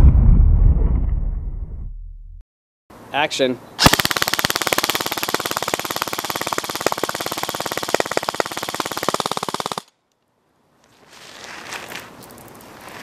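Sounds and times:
airsoft gun firing full auto: 0:03.8 - 0:09.9.

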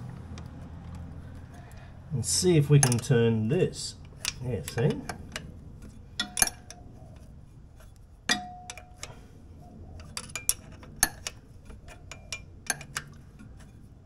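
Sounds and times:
metal tools clinking: 0:02.6 - 0:03.2.

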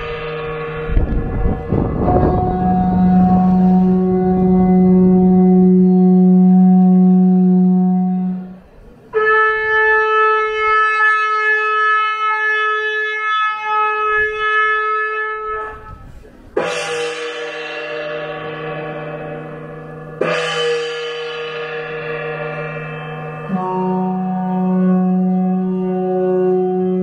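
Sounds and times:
ringing gong-like strikes: 0:00.0 - 0:08.7, 0:16.6 - 0:26.2
ceremonial horn notes: 0:00.0 - 0:27.0.

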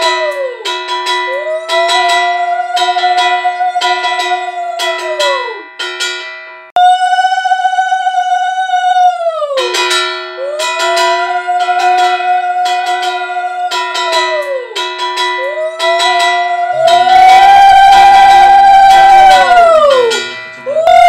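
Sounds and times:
brass hand bell ringing: 0:00.0 - 0:06.7, 0:09.7 - 0:21.0
conch shell blown: 0:09.6 - 0:21.0.

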